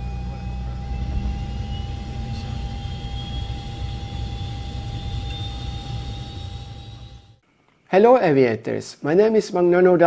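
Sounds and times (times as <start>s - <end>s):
high whine rising: 0.0s - 7.4s
turboprop engine rumble: 0.0s - 7.4s.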